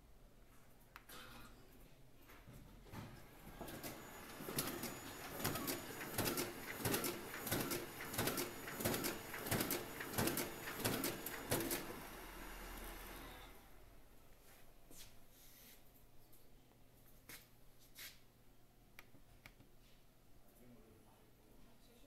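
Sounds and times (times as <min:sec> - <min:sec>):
duplicator machine clicking rhythmically: 0:03.9 - 0:12.5.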